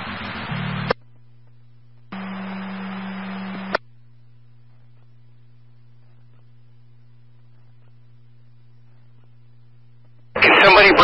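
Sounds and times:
low hum: 0.0 - 11.0
radio static hiss: 0.0 - 11.0.

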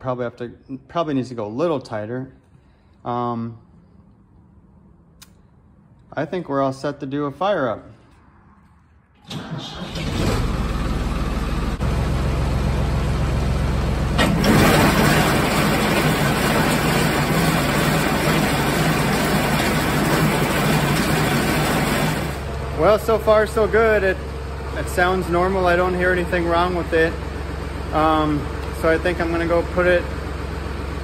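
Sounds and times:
tractor engine running: 9.2 - 31.0.

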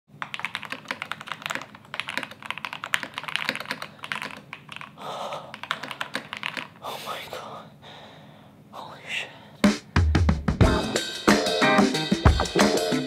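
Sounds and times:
mechanical keyboard typing: 0.2 - 6.8.

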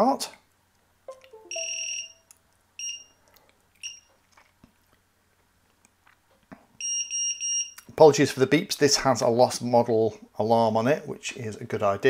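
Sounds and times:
high-pitched electronic beeping: 1.1 - 3.0.

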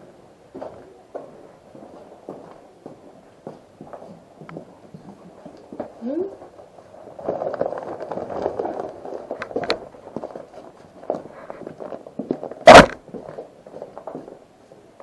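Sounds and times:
rustling and clattering: 3.4 - 14.5
loud short thump: 12.7 - 13.0.

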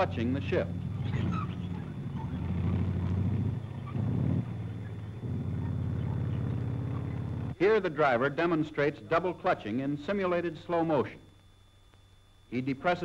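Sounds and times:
tank engine running: 0.0 - 7.6.

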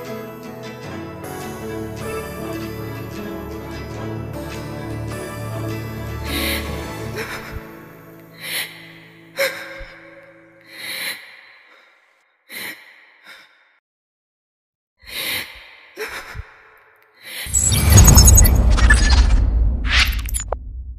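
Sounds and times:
music: 0.0 - 10.9
loud dense noise burst: 17.5 - 20.9.

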